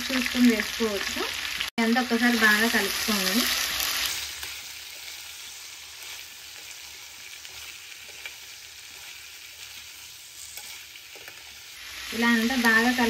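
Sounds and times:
vegetables sizzling in hot oil: 0.0 - 13.0.

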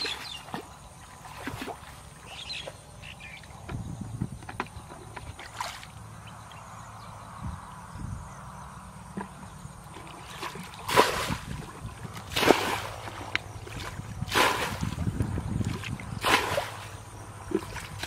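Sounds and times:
water splashes: 0.0 - 2.7, 5.2 - 6.0, 9.8 - 18.0
muddy water sloshing: 0.0 - 3.8, 4.4 - 6.5, 9.1 - 18.0.

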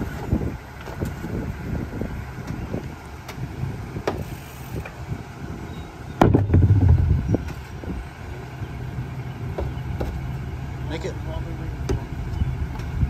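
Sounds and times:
garbage truck engine running: 4.9 - 13.0
trash cart knocking: 6.2 - 7.5
cart banging against hopper: 6.2 - 7.6
low rumble: 6.2 - 8.0.

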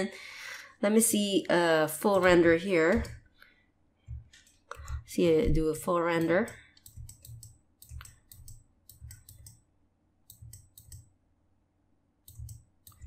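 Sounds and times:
computer mouse and keys clicking: 2.1 - 9.6, 10.2 - 11.2, 12.2 - 13.0.

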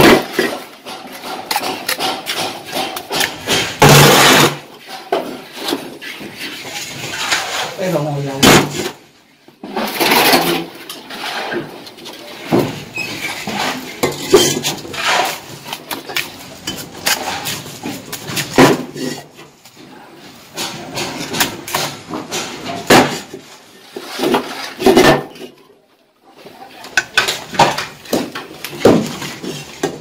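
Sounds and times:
trowel scraping mortar: 0.0 - 8.1, 12.9 - 19.4.

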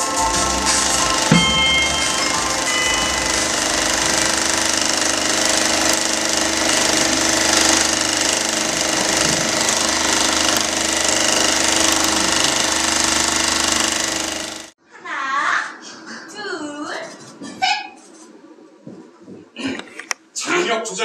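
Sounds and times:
sewing machine running: 0.0 - 14.8.

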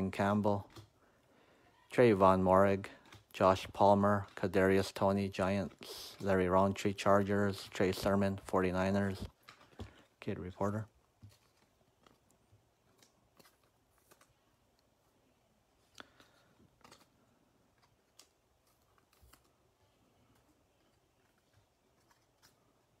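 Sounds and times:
trading cards clicking: 15.9 - 19.6.

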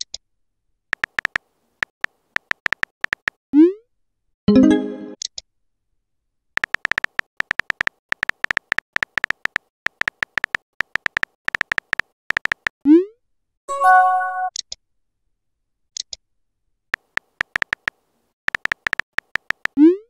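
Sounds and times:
keyboard tap clicks: 1.0 - 1.4, 2.4 - 3.4, 6.6 - 12.7, 17.0 - 19.8
message arrival chime: 4.5 - 5.2, 13.7 - 14.5.

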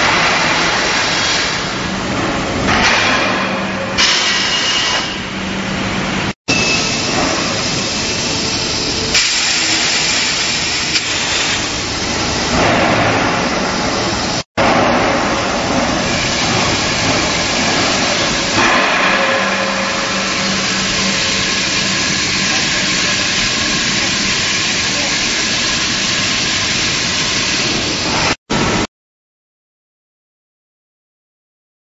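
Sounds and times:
mill machinery hissing: 4.0 - 28.8.

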